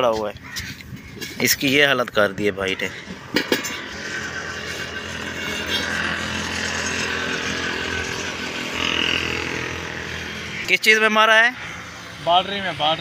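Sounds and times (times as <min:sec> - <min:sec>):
small motor droning: 0:02.8 - 0:13.0.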